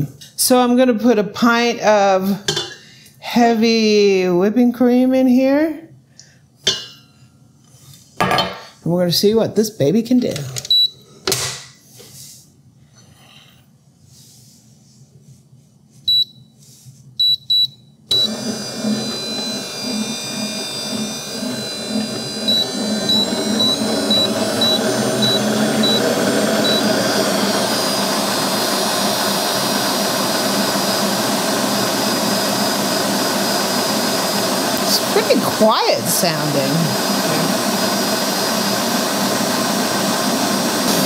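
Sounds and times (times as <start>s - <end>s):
stand mixer whisking cream: 18.1s - 41.0s.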